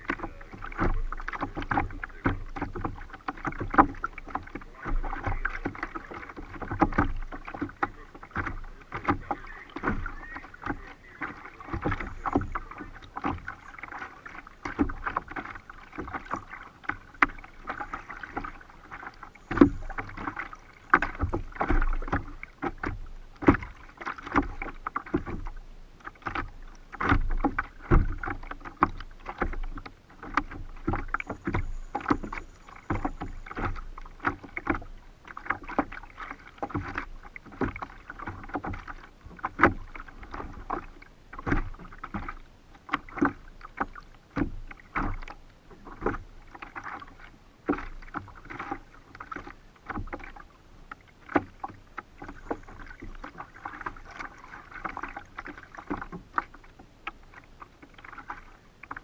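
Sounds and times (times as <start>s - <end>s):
steady wash of water: 0.0s - 59.0s
water splashing against kayak hull: 0.0s - 59.0s
knocks on kayak hull: 4.9s - 10.8s, 26.2s - 32.3s, 36.6s - 42.4s.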